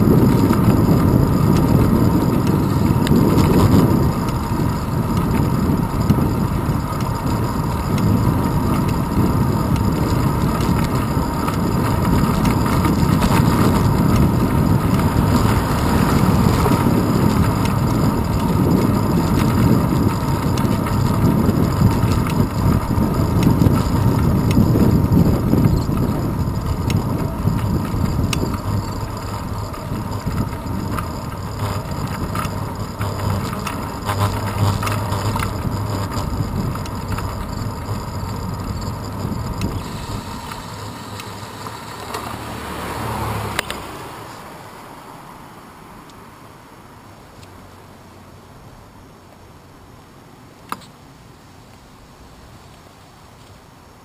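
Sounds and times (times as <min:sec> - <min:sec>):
wind rushing over microphone: 0:00.0 - 0:44.5
road rumble: 0:00.0 - 0:54.0
car passing: 0:12.0 - 0:21.1, 0:39.8 - 0:46.8.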